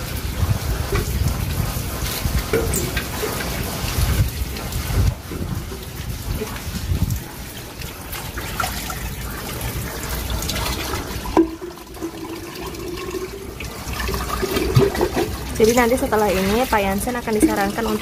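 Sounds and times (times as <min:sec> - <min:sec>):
water splashing on tiled floor: 0:00.0 - 0:18.0.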